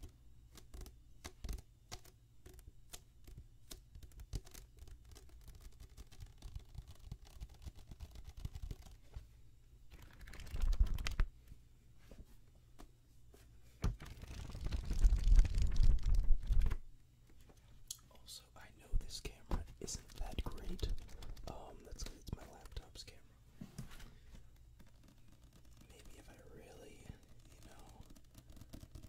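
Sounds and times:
paper rustling: 0:09.9 - 0:11.3, 0:13.9 - 0:16.8, 0:19.8 - 0:23.0, 0:23.7 - 0:26.2.

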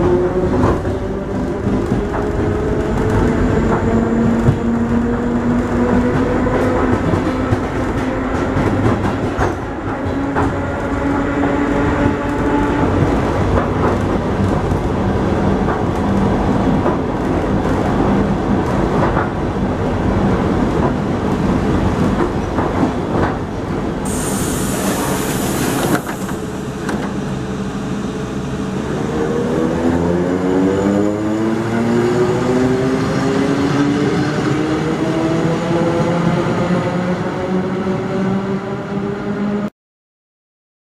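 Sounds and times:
loud air hiss: 0:24.0 - 0:26.9
train traction motor whine: 0:24.1 - 0:31.0.

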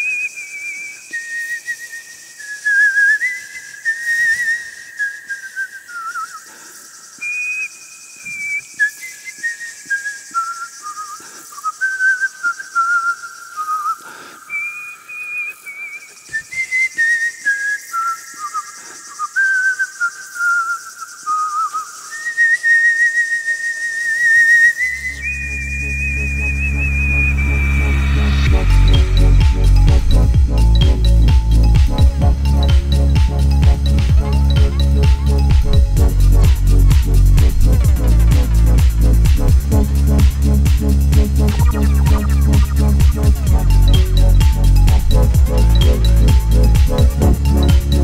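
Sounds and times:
person whistling a tune: 0:00.0 - 0:48.0
electronic music with heavy bass: 0:25.6 - 0:48.0.

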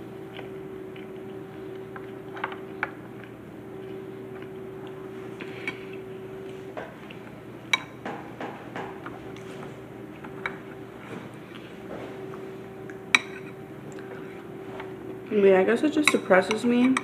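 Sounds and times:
steady hum: 0:00.0 - 0:17.0
spoon clinking against a bowl: 0:13.1 - 0:13.5, 0:16.0 - 0:17.0.

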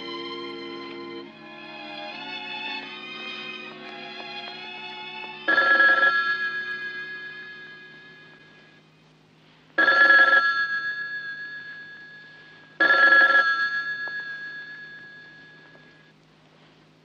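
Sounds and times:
telephone bell ringing: 0:05.4 - 0:08.8, 0:09.8 - 0:16.1.

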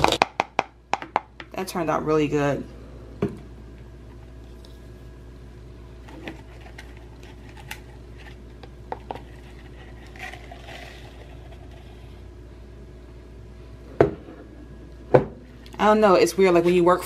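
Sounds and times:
ground coffee rustling: 0:09.0 - 0:12.1.

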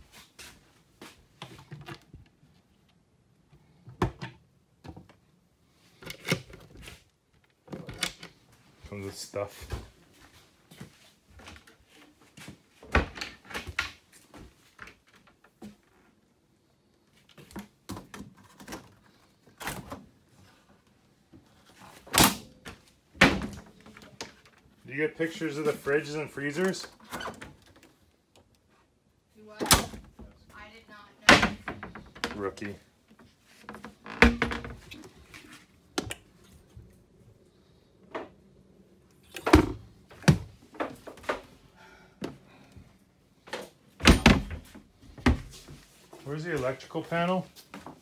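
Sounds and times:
wooden cabinet doors opening and shutting: 0:03.6 - 0:05.2, 0:06.0 - 0:08.6, 0:12.4 - 0:15.8, 0:17.4 - 0:20.2, 0:21.4 - 0:24.6, 0:26.8 - 0:28.0, 0:29.6 - 0:30.4, 0:31.2 - 0:32.8, 0:33.6 - 0:36.4, 0:38.0 - 0:41.6, 0:43.4 - 0:45.9.

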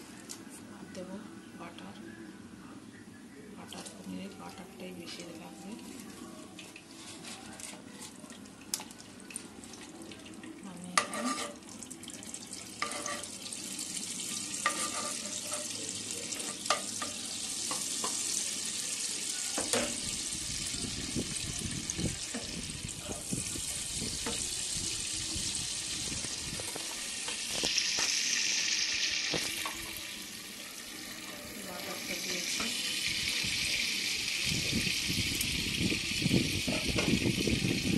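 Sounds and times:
utensils scraping a pan: 0:06.9 - 0:08.2, 0:11.0 - 0:11.6, 0:12.8 - 0:13.4, 0:14.3 - 0:15.8, 0:16.4 - 0:18.2
butter sizzling in oil: 0:10.9 - 0:37.9.

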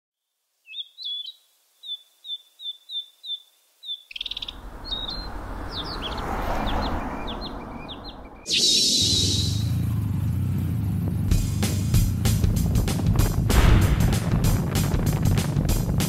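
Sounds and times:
small birds chirping: 0:00.2 - 0:13.1
steady rushing noise: 0:04.3 - 0:09.8, 0:11.2 - 0:16.0.

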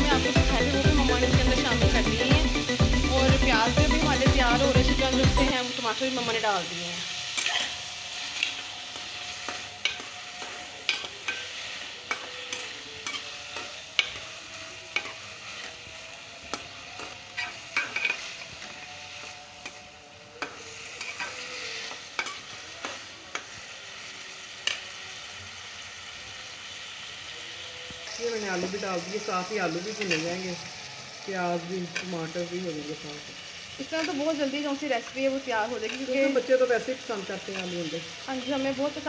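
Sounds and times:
onions sizzling in a pot: 0:00.0 - 0:39.0
metal spatula scraping pan: 0:07.0 - 0:23.6, 0:28.0 - 0:30.9, 0:37.4 - 0:38.8.

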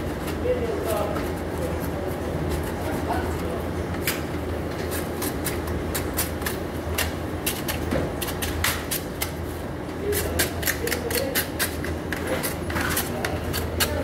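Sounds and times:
hand tool scraping plastic pipe: 0:10.6 - 0:14.0.

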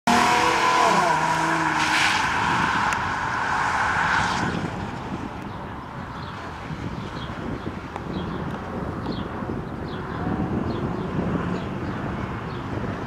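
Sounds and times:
tires squealing: 0:00.1 - 0:05.4
car engine: 0:00.1 - 0:07.7.

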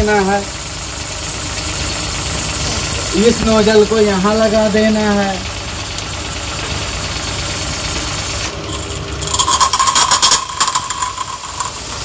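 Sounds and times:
pressure washer motor running: 0:00.0 - 0:12.0
high-pressure water jet hissing: 0:07.4 - 0:08.6.

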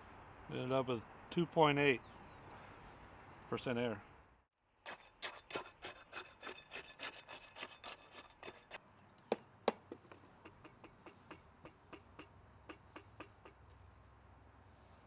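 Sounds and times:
rod scraping in concrete: 0:04.9 - 0:08.8.

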